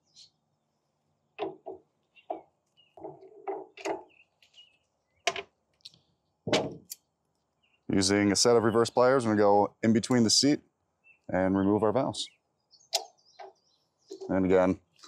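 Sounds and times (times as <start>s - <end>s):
handling noise: 1.4s - 4.6s.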